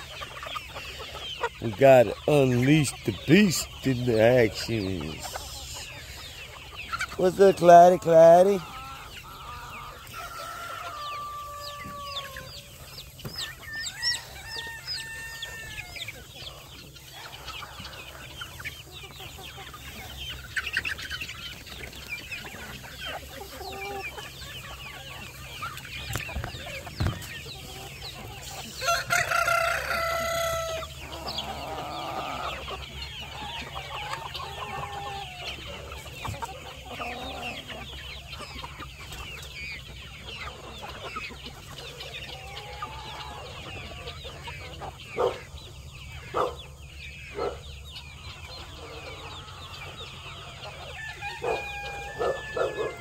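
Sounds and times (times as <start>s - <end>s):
chickens clucking: 0.0s - 53.0s
rooster crowing: 10.1s - 12.6s, 13.8s - 16.1s, 28.8s - 32.5s, 50.9s - 53.0s.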